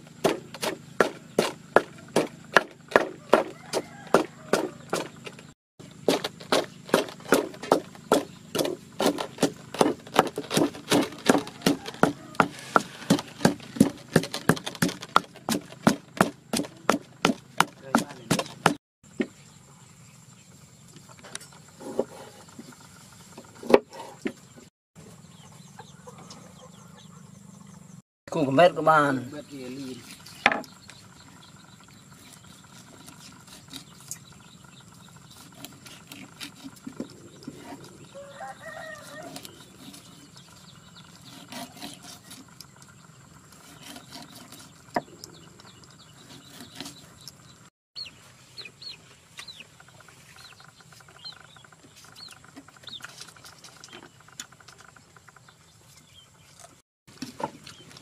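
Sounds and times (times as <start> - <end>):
pestle pounding in stone mortar: 0.2 - 5.3, 6.0 - 18.8
cleaver tapping and scraping on board: 6.1 - 18.8.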